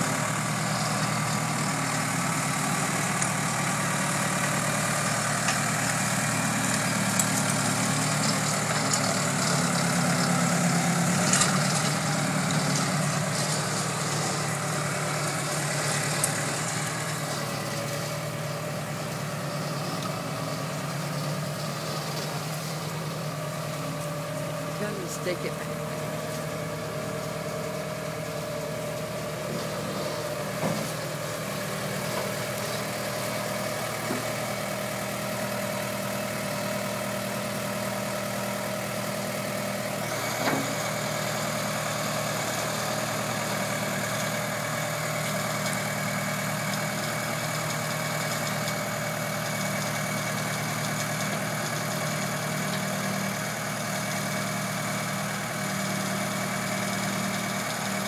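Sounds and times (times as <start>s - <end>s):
loader engine idling: 0.0s - 58.0s.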